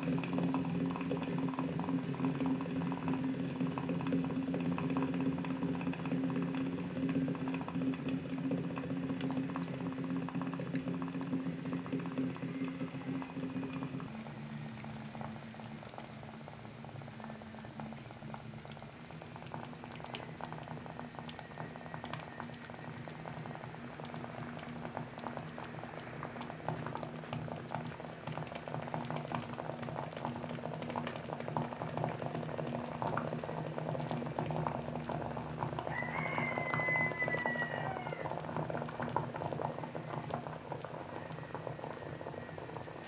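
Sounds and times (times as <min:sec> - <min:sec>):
small crackling pops: 0:00.0 - 0:35.9, 0:38.2 - 0:43.0.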